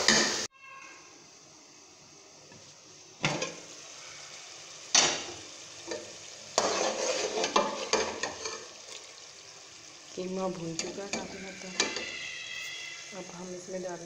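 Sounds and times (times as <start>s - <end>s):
meat sizzling in a pot: 0.0s - 14.0s
ladle scraping against pot: 6.6s - 8.7s.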